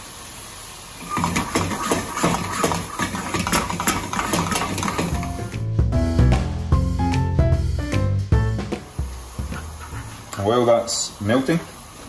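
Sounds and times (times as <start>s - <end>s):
sauce boiling and spitting in pan: 0.0s - 5.6s, 8.7s - 12.0s.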